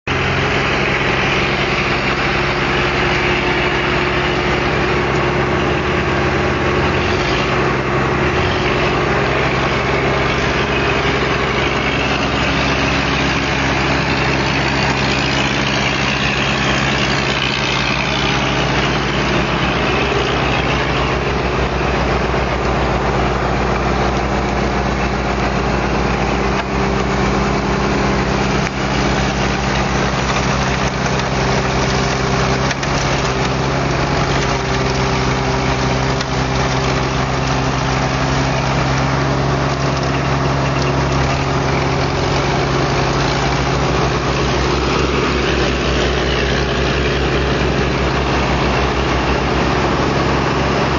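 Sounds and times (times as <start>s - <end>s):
snow blower engine running: 0.0s - 50.9s.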